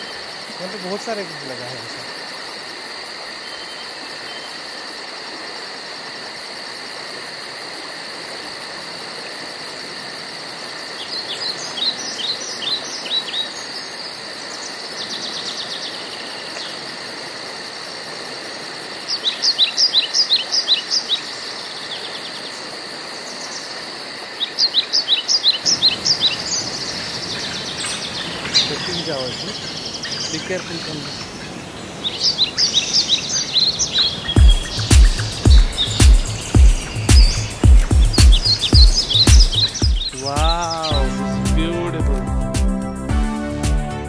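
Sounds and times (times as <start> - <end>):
high-pitched insect drone: 34.4 - 41.6.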